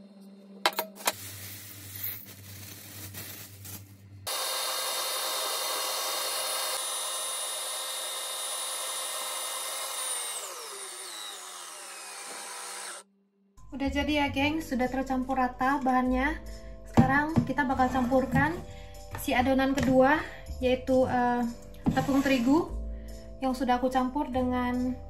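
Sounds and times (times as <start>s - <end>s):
electric stand mixer running: 4.3s - 13.0s.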